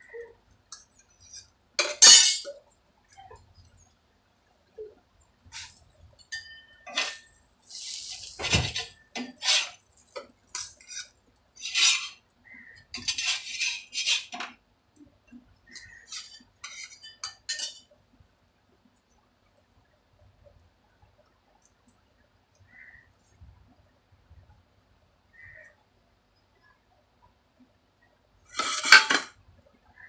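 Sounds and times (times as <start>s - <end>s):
plates and knife clinking: 1.8s - 2.5s, 5.6s - 7.3s, 15.8s - 17.9s, 28.5s - 29.3s.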